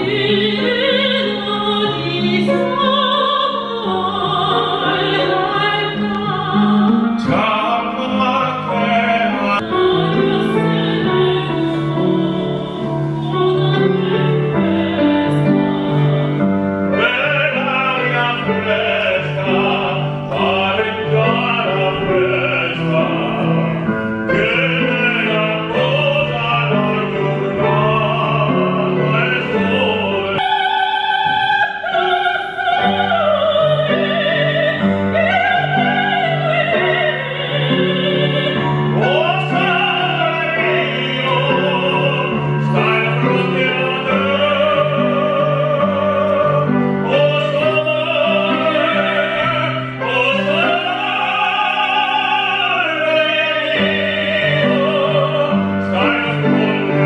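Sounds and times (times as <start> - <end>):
woman singing operatically: 0.0 - 23.6, 24.4 - 45.2
instrumental accompaniment: 0.0 - 57.0
man singing operatically: 7.2 - 11.2, 16.9 - 30.4, 32.5 - 57.0.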